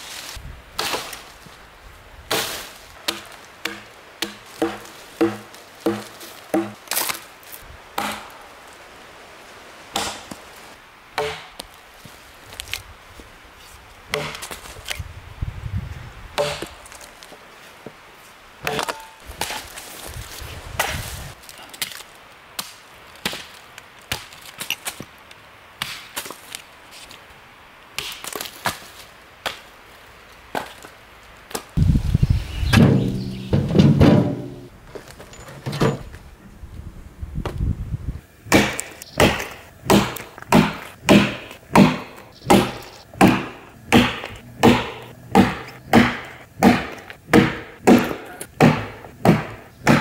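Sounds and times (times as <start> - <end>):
axe chopping firewood: 2.3 - 7.2, 8.0 - 8.4, 9.9 - 10.4, 11.2 - 11.7, 14.1 - 15.0, 16.4 - 17.1, 18.6 - 19.8, 22.6 - 25.1, 25.8 - 26.4, 38.5 - 50.0
logs being stacked: 2.3 - 8.8, 10.0 - 13.3, 14.1 - 15.1, 32.7 - 36.5, 38.4 - 50.0.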